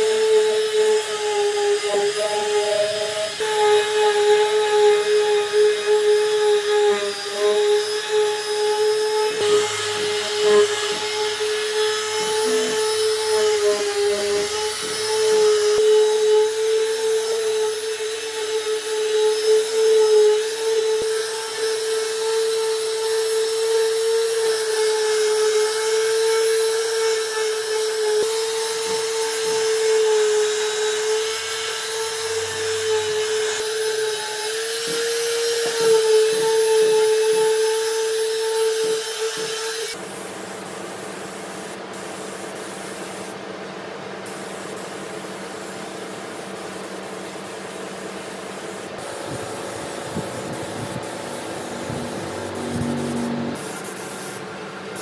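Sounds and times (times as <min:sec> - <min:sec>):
power tool motor whine: 0:00.0 - 0:40.0, 0:48.9 - 0:54.0
even hiss with low hum: 0:44.0 - 0:55.0.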